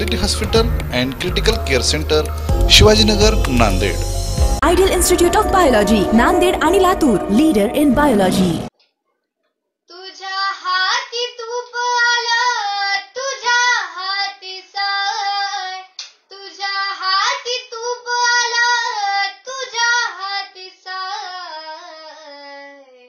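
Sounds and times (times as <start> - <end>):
girl singing unaccompanied: 9.9 - 23.0.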